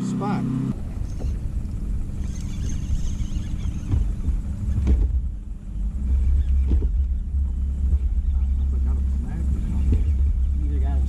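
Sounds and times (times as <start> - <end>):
wind buffeting microphone: 0.7 - 11.0
faint knocks: 3.6 - 5.4, 6.4 - 10.6.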